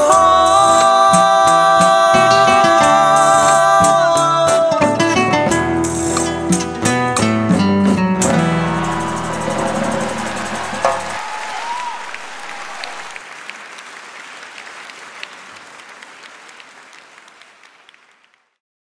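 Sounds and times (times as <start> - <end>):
band's last chord: 8.2 - 13.2
audience applauding: 8.3 - 18.6.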